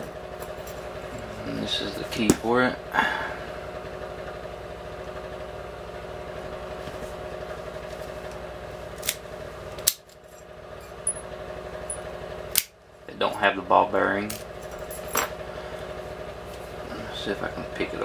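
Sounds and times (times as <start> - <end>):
low hum: 5.1 - 18.0.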